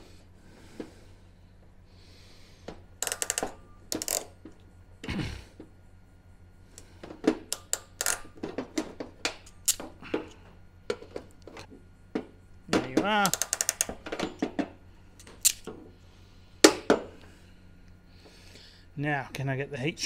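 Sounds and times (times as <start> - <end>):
hand tools clicking and tapping: 12.7 - 15.7.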